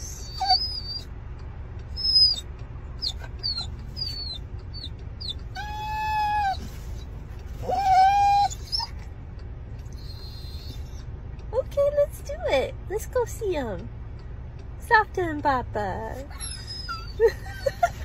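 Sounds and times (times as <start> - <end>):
dog whining: 0.0 - 1.1, 2.0 - 9.1, 9.9 - 11.0, 16.2 - 17.8
car rumble: 0.0 - 18.0
dog howling: 7.6 - 8.9.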